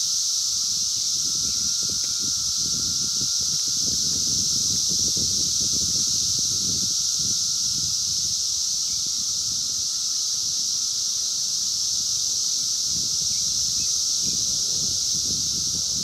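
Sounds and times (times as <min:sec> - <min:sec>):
cicada chorus drone: 0:00.0 - 0:16.0.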